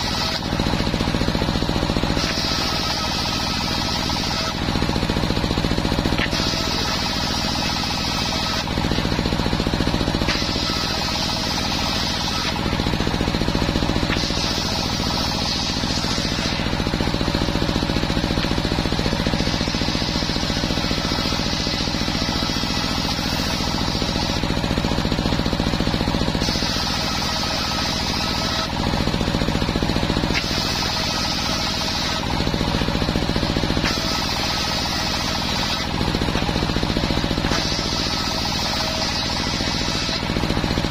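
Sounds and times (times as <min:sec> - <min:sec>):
saw blade cutting wood: 0:00.0 - 0:40.9
table saw running: 0:00.0 - 0:40.9.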